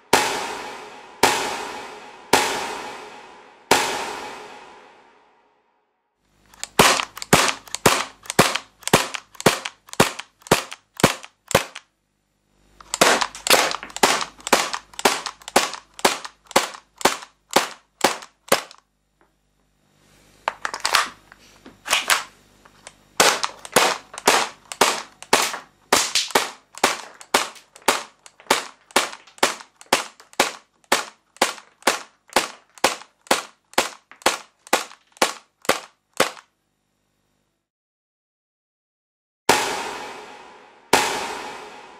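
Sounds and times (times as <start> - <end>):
airsoft pistol firing: 6.5 - 11.9, 12.8 - 18.8, 23.2 - 36.5.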